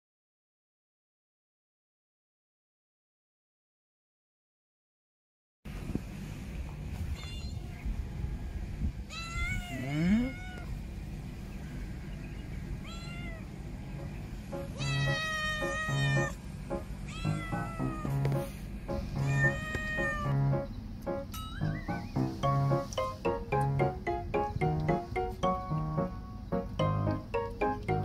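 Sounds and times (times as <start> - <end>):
cat meowing: 7.1 - 7.8, 9.1 - 10.7, 12.8 - 13.5, 14.8 - 16.4, 17.1 - 18.3, 19.2 - 20.4
background music with steady beat: 14.0 - 15.2, 16.1 - 19.6, 20.3 - 28.0.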